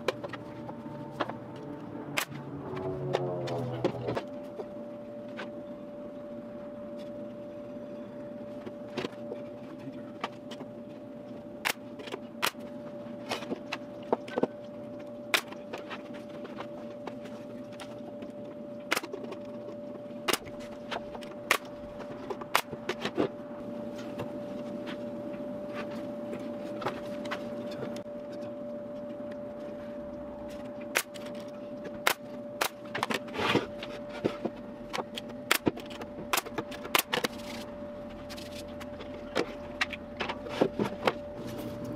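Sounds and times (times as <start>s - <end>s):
steady hum: 0.0s - 41.9s.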